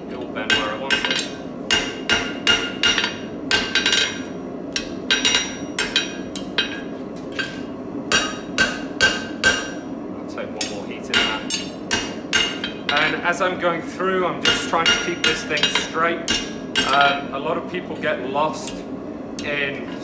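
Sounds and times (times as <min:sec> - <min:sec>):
hammer striking steel on anvil: 0:00.5 - 0:09.8, 0:10.6 - 0:13.2, 0:14.4 - 0:17.2.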